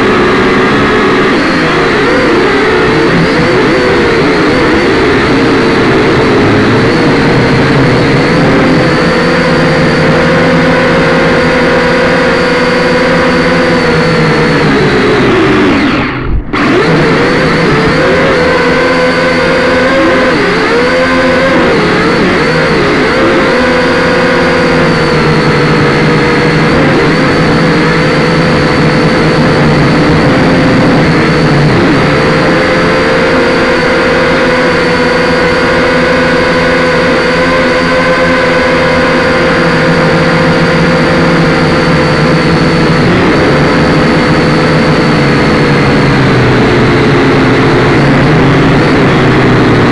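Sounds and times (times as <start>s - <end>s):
drone propellers buzzing: 0.0s - 49.9s.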